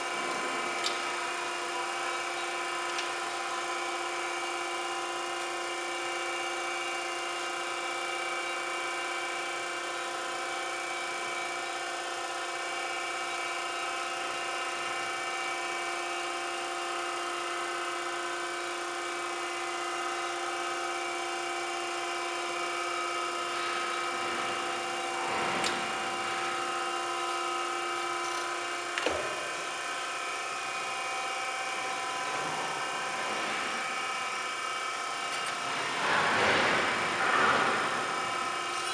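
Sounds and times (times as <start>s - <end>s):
surface grinder humming: 31.7s - 38.9s.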